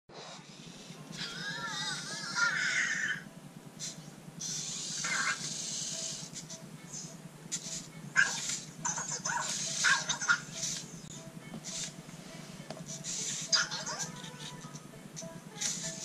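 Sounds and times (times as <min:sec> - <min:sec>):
toy robot electronic voice: 0:01.2 - 0:03.3, 0:04.4 - 0:10.8, 0:12.9 - 0:14.8
hissy electronic bursts: 0:03.8 - 0:10.9, 0:11.6 - 0:13.8.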